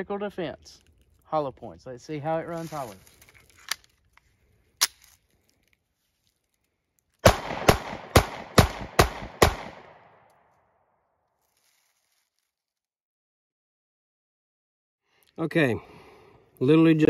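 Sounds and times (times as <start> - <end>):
pistol gunshots: 7.2 - 10.2.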